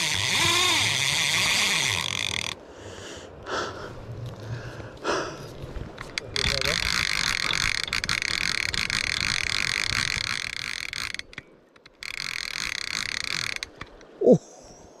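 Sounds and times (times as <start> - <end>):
fishing reel drag buzzing: 0.0 - 2.6, 6.4 - 14.0.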